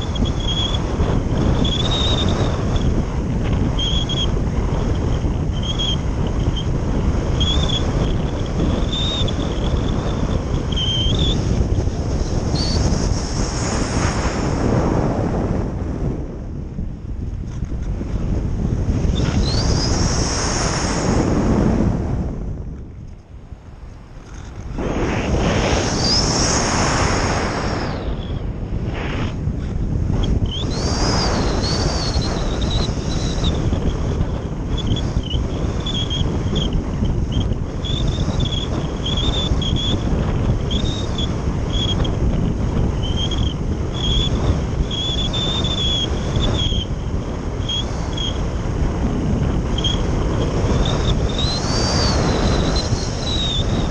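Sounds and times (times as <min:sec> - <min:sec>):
airflow rushing over camera: 0:00.0 - 0:53.9
wind buffeting microphone: 0:00.0 - 0:53.9
short high whines: 0:24.1 - 0:29.6.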